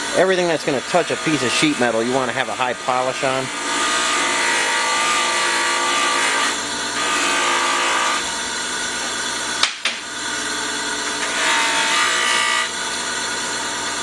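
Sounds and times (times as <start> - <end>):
abrasive wheel grinding metal: 0.0 - 9.2.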